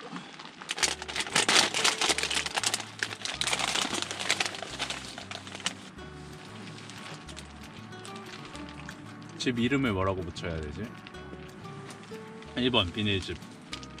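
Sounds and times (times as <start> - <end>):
plastic snack bag crinkling: 0.2 - 5.9, 6.5 - 9.4, 12.4 - 14.0.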